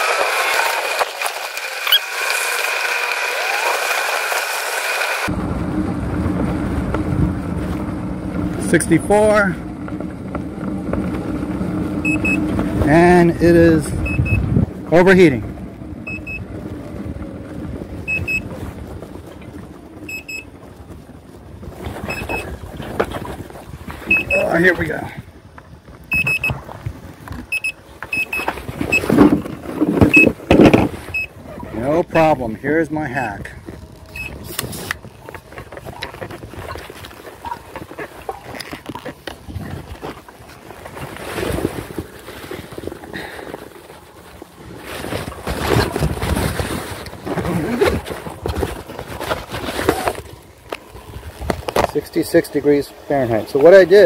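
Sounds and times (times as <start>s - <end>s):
wind buffeting microphone: 5.3s - 27.6s
high-pitched warning beeps: 12.0s - 12.4s, 14.0s - 14.4s, 16.1s - 16.4s, 18.1s - 18.4s, 20.1s - 20.5s, 22.1s - 22.5s, 24.1s - 24.6s, 26.1s - 26.6s, 27.5s - 29.1s.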